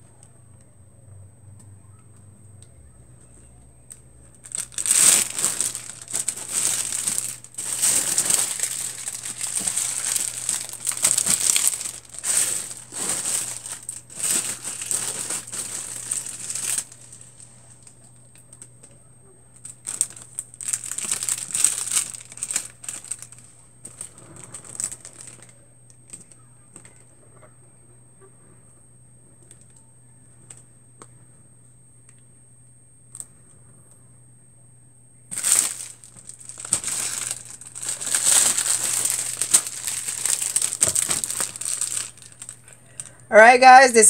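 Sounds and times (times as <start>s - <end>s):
cellophane crinkling: 3.9s - 27.0s, 35.3s - 44.0s.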